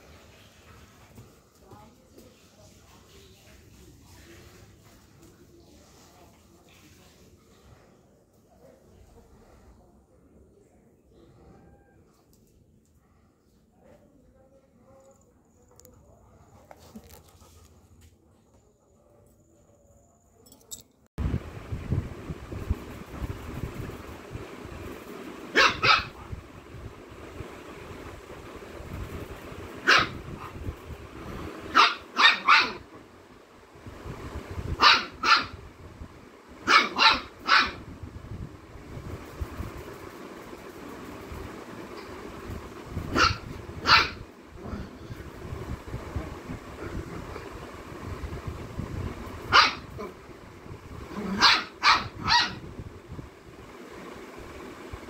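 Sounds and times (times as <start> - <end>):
dog barking: 25.5 - 26.2, 29.8 - 30.2, 31.7 - 32.8, 34.8 - 35.6, 36.6 - 37.8, 43.1 - 44.2, 49.5 - 50.1, 51.2 - 52.6
puppy yapping: 31.8 - 32.8, 36.7 - 37.8.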